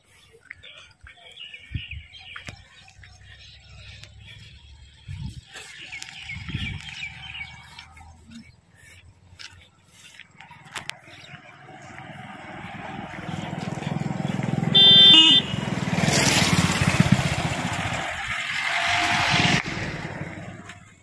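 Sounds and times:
car passing by: 10.5s - 21.0s
car horn honk: 14.6s - 15.9s.

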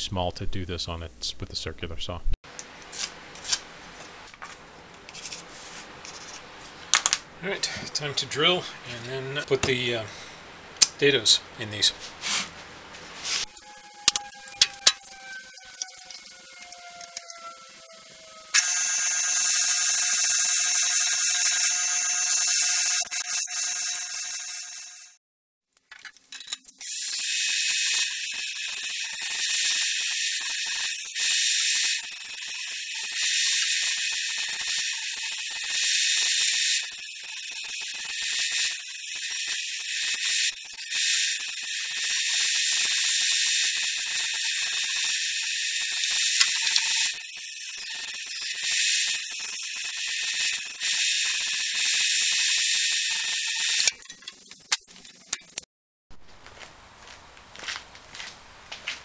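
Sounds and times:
band saw cutting wood: 13.4s - 25.1s, 26.8s - 54.8s.

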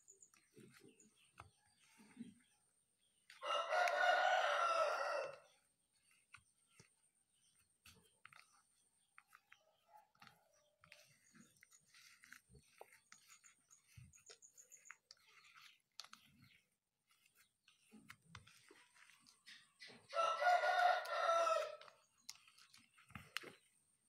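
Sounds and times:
dough squishing by hand: 0.0s - 24.0s
rooster crowing: 3.4s - 5.4s, 20.1s - 21.8s.

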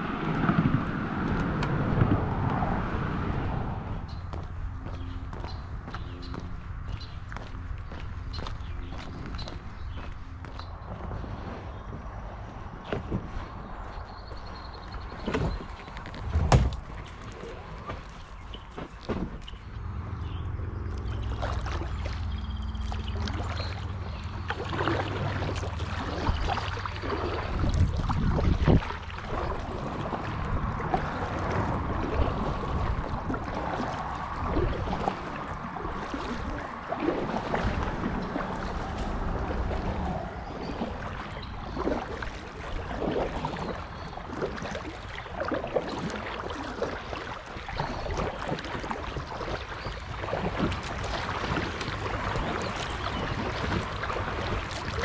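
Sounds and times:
low rumble: 0.0s - 15.2s, 19.3s - 43.0s
kayak paddle splashing: 0.0s - 55.0s
water running past hull: 0.0s - 55.0s.

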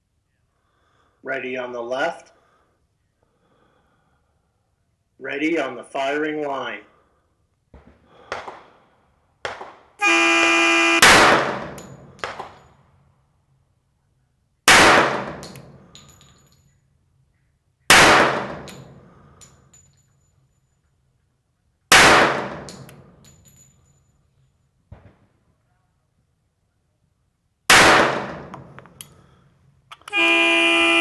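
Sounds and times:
pistol shots: 7.8s - 8.8s, 9.4s - 10.0s, 11.0s - 12.7s, 14.7s - 15.8s, 17.9s - 19.0s, 21.9s - 23.2s, 27.7s - 28.8s.

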